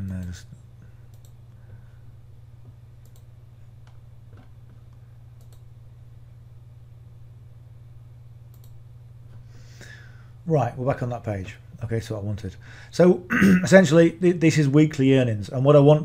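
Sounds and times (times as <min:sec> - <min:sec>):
steady low hum: 0:00.0 - 0:16.0
computer mouse clicks: 0:01.1 - 0:01.4, 0:03.0 - 0:05.7, 0:08.5 - 0:08.8.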